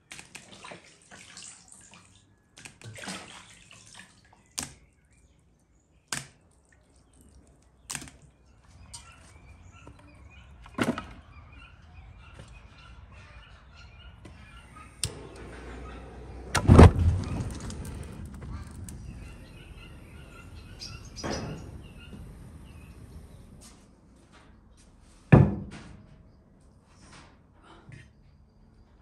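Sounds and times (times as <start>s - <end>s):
birds chirping: 4.2s - 23.8s
wood fire burning: 15.0s - 23.6s.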